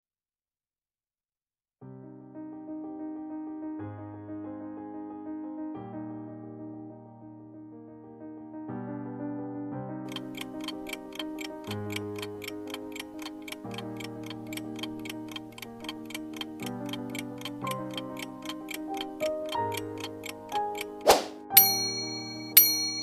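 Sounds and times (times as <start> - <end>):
soft electric piano music: 1.8 - 23.0
clock ticking: 10.1 - 23.0.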